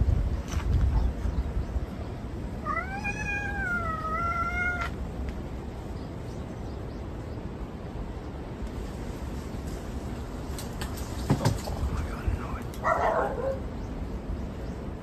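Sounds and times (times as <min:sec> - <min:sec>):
cat meowing: 0:02.6 - 0:05.0.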